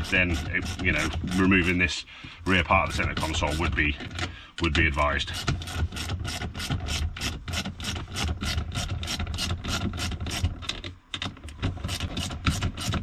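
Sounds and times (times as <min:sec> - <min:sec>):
hand ratchet clicking: 0:05.3 - 0:13.0.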